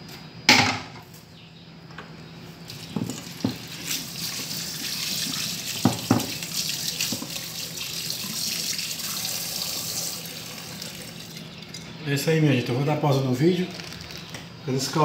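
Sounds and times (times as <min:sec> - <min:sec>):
faucet running into metal pot: 0:02.7 - 0:11.4
food stirred by hand in water: 0:02.7 - 0:11.6.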